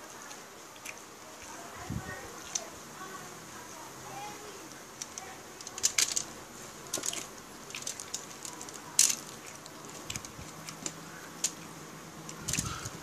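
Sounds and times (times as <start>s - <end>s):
sharp crackle: 4.4s - 13.0s.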